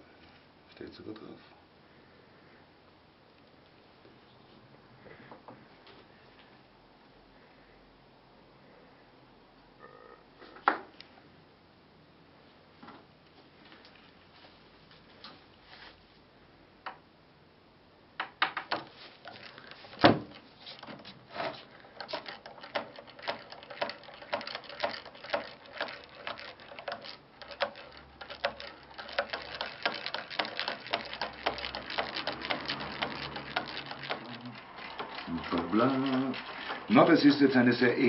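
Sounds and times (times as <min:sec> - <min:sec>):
spatula clicking on glass: 0:21.9 - 0:36.5.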